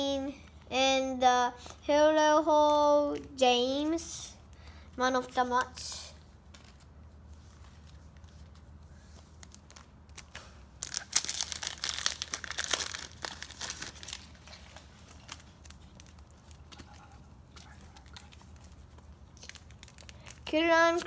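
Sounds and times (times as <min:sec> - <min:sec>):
foil packet tearing and crinkling: 0:09.4 - 0:16.6, 0:18.0 - 0:21.0.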